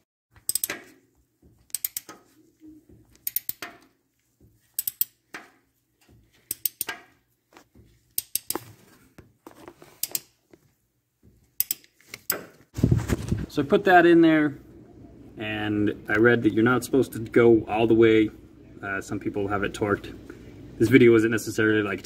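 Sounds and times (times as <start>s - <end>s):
ratchet wrench clicking: 0.4s - 0.8s, 1.7s - 2.2s, 3.2s - 3.8s, 4.7s - 5.2s, 6.5s - 7.0s, 8.2s - 8.6s, 11.6s - 12.3s.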